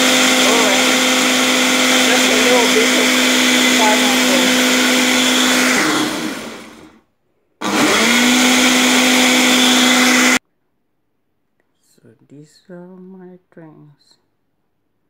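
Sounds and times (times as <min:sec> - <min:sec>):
blender motor humming: 0:00.0 - 0:07.0, 0:07.6 - 0:10.4.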